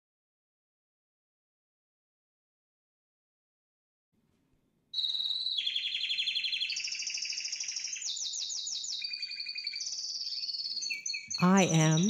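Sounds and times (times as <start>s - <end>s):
canary singing trills: 5.0s - 12.0s.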